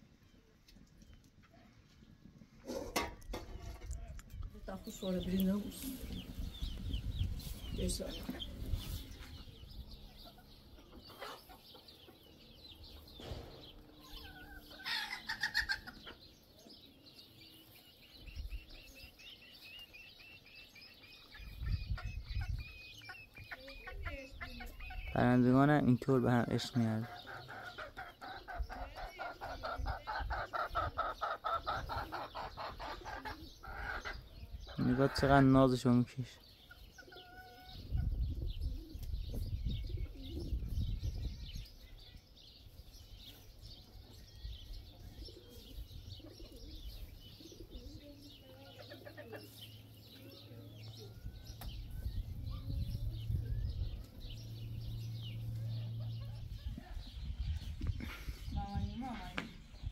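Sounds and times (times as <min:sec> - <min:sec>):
small birds chirping: 0:00.0 - 0:59.9
chicken clucking: 0:02.6 - 0:13.0, 0:14.0 - 0:35.7, 0:36.4 - 0:38.2, 0:46.4 - 0:58.4.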